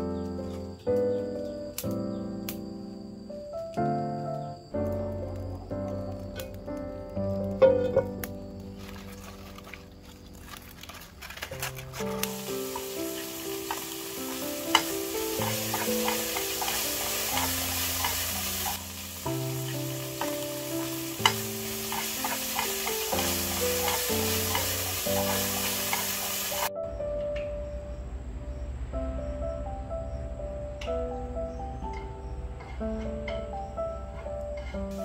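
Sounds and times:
background music: 0.0s - 35.0s
food sizzling in a pan: 8.7s - 26.7s.

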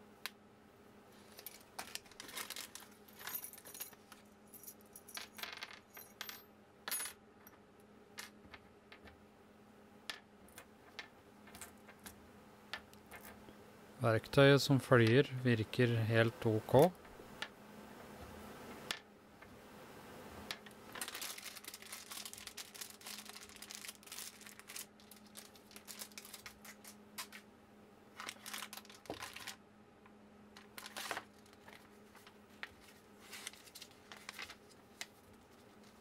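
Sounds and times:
plastic packaging crinkling: 1.5s - 2.9s, 20.9s - 27.3s, 28.2s - 29.6s, 30.6s - 36.0s
steady low hum: 5.9s - 36.0s.

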